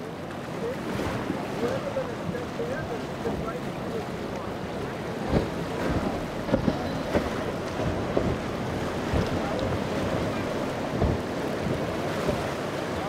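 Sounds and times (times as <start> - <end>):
powerboat running fast: 0.0 - 13.0
rush of wake and spray: 0.0 - 13.0
wind buffeting microphone: 3.5 - 13.0
hull thumps: 5.3 - 12.5.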